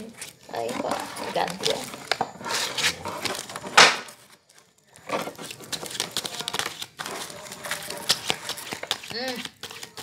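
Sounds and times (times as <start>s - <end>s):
playing cards rustling and clicking: 5.2s - 10.0s.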